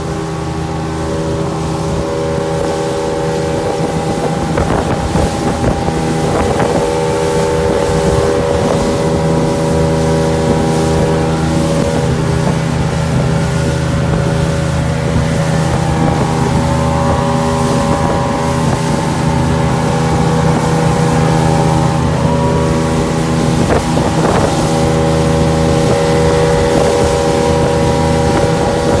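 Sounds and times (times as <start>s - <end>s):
boat engine drone: 0.0s - 29.0s
wind buffeting microphone: 0.0s - 29.0s.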